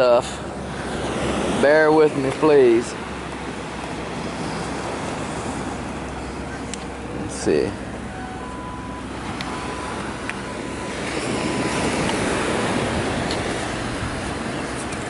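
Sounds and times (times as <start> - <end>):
surf rushing: 0.0 - 15.0
wind: 0.0 - 15.0
metal detector beeping: 8.1 - 12.8.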